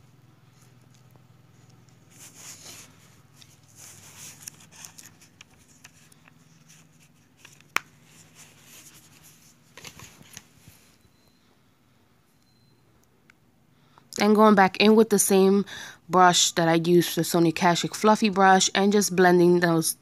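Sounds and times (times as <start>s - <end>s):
makeup brush rustling: 0.5s - 11.0s.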